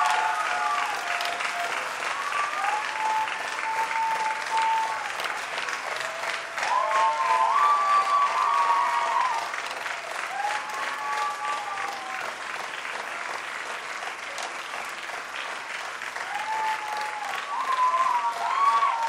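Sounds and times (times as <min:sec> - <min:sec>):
long calls from crowd: 0:00.0 - 0:12.3, 0:16.2 - 0:19.0
audience applauding: 0:00.0 - 0:19.0.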